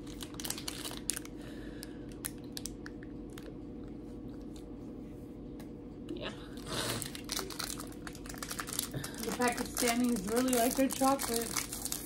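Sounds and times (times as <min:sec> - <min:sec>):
steady low hum: 0:00.0 - 0:12.0
chewing crunchy snack: 0:06.6 - 0:12.0.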